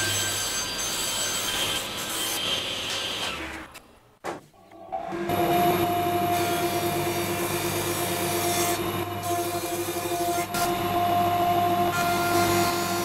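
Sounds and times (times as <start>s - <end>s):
thickness planer whine: 4.7s - 13.0s.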